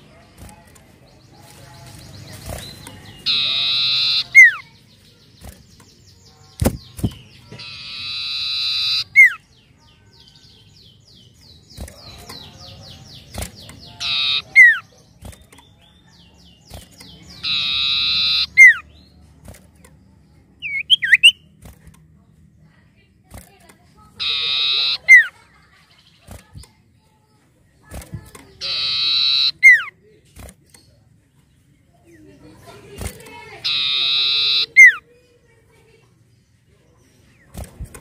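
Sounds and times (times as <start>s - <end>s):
bird chatter: 0.0s - 38.0s
bird ticking notes: 2.2s - 9.5s, 11.0s - 22.2s, 23.6s - 25.3s, 28.2s - 29.9s, 33.1s - 35.0s
bird buzzy trill and whistle: 2.5s - 4.7s, 7.6s - 9.4s, 13.4s - 15.4s, 16.7s - 18.9s, 20.6s - 21.5s, 24.2s - 25.4s, 28.6s - 29.9s, 33.6s - 35.0s.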